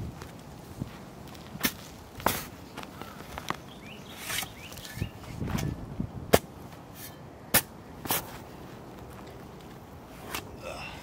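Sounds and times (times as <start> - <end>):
earth crunching and rustling: 0.0 - 10.8.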